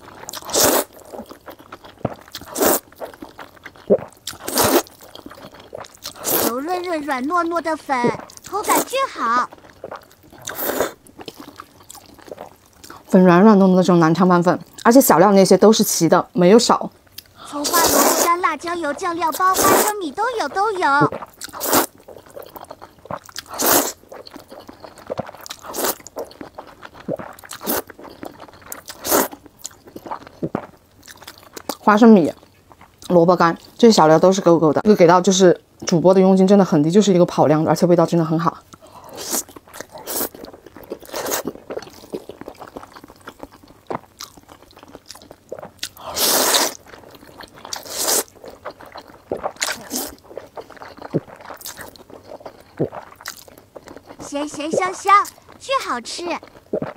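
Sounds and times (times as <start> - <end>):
soft wet chewing: 0.0 - 13.2, 16.8 - 33.8, 38.4 - 56.9
noodles being slurped: 0.2 - 13.1, 17.4 - 29.4, 38.9 - 44.1, 45.6 - 56.9.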